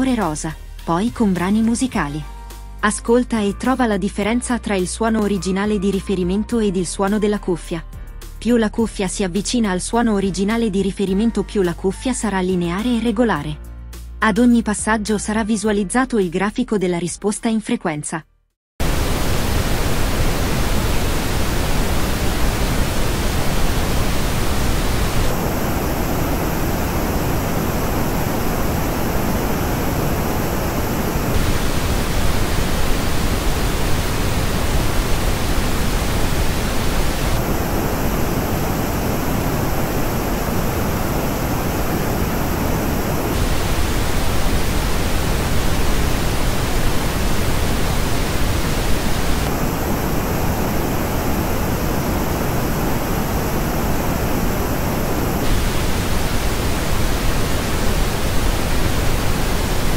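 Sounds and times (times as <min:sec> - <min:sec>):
pink noise test signal: 0:00.0 - 0:02.3, 0:18.8 - 0:59.9.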